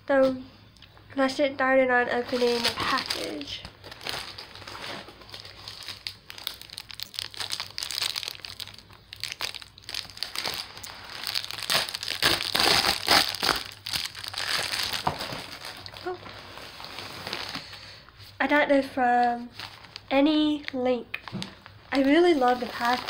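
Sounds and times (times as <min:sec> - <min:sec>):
plastic mailer crinkling: 0:02.1 - 0:17.8, 0:19.2 - 0:20.1, 0:21.2 - 0:23.0.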